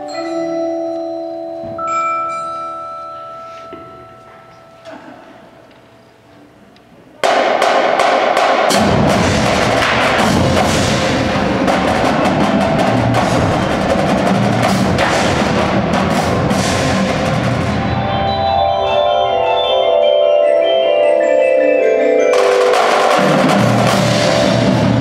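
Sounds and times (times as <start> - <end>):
marimba notes: 0.0 - 4.8, 17.0 - 25.0
marching snare and tenor drums: 7.2 - 18.0, 22.4 - 25.0
bass drums: 8.7 - 18.1, 23.2 - 25.0.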